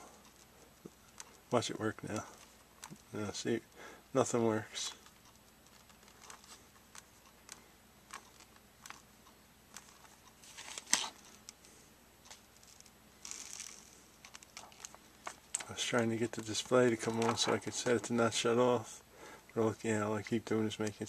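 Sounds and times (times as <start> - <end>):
cracked glass crinkling: 12.6 - 15.7.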